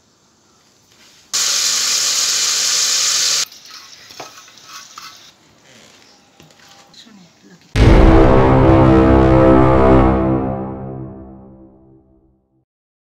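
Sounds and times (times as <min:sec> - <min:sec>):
hot oil sizzling in a pot: 0:01.4 - 0:05.1.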